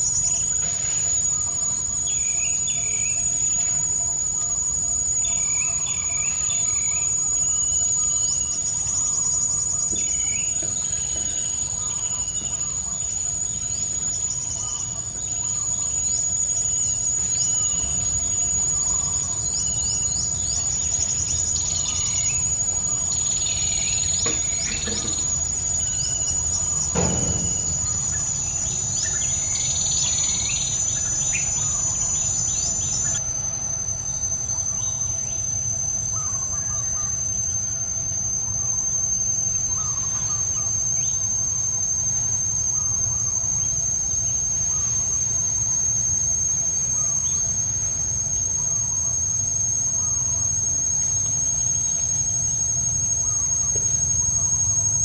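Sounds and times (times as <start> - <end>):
high-pitched insect drone: 0.0 - 55.0
thump: 26.9 - 27.8.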